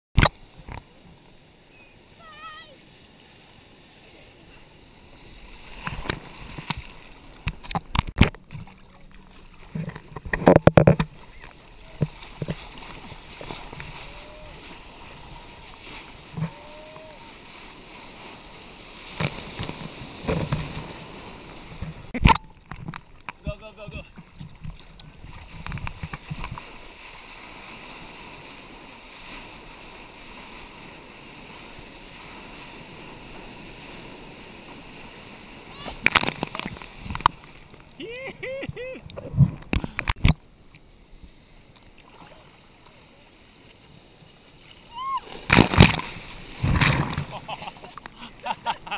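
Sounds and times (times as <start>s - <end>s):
wind: 0.1s - 48.9s
rush of breaking wave water: 2.1s - 22.2s, 25.2s - 40.2s, 42.0s - 48.9s
water slapping and splashing: 2.4s - 40.4s, 41.8s - 48.9s
sharp splashes and knocks: 5.6s - 14.1s, 19.0s - 23.4s, 35.9s - 37.8s, 45.3s - 48.2s
seawater sloshing against camera: 44.6s - 48.9s.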